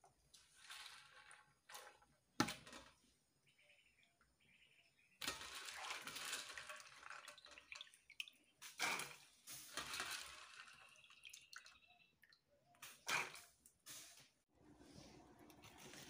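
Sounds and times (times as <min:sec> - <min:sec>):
water splashing and dripping: 0:05.2 - 0:13.8.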